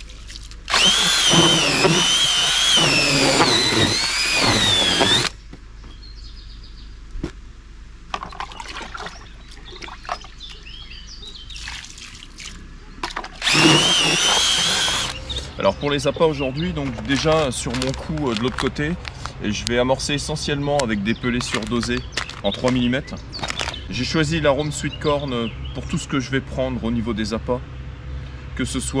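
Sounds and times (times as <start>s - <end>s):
wet mix worked by hand: 0.0s - 5.4s, 11.5s - 15.2s
drill motor whining: 0.7s - 5.4s, 13.4s - 15.2s.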